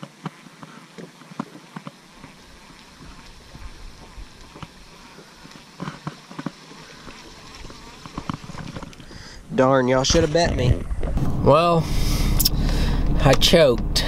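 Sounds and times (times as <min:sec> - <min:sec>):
reel clicks and knocks: 0:08.0 - 0:09.0
steady low rumble: 0:10.1 - 0:14.0.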